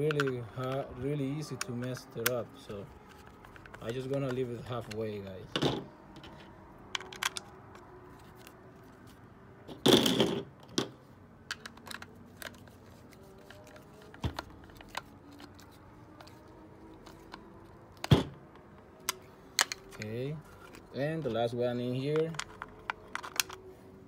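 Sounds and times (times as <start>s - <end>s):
screwdriver clicks on metal parts: 0.0s - 0.8s.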